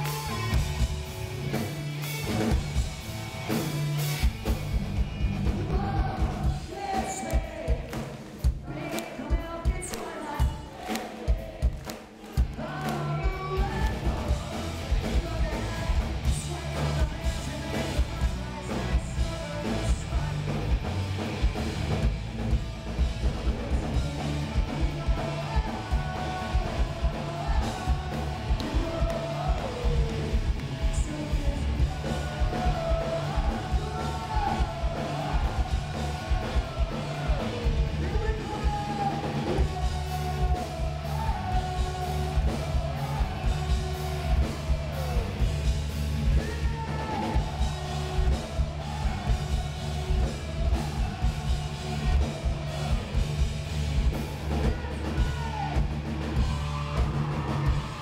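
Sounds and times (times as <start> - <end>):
electric guitars: 0.0 - 8.2, 12.3 - 58.0
bass guitar: 0.0 - 10.5, 11.3 - 58.0
driving drum beat: 0.0 - 58.0
man singing: 5.5 - 8.0, 12.5 - 20.8, 23.4 - 45.6, 46.2 - 53.2.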